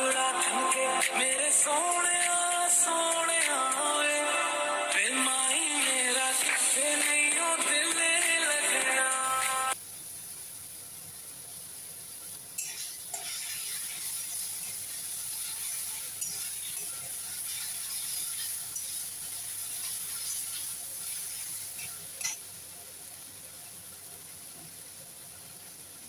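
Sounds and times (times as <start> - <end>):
greens sizzling in oil: 9.2 - 26.0
metal spatula scraping a wok: 12.6 - 22.4.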